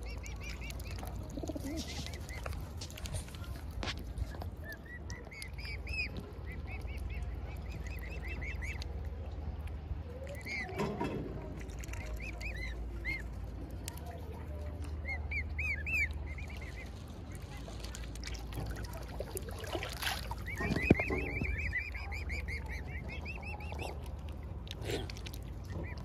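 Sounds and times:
young waterfowl peeping: 0.0 - 26.0.

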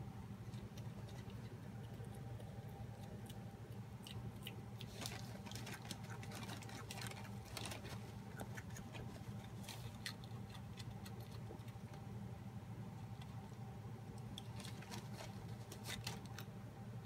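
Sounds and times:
steady low hum: 0.0 - 17.0
faint sharp clicks and rustles: 0.4 - 12.1, 13.0 - 16.6.

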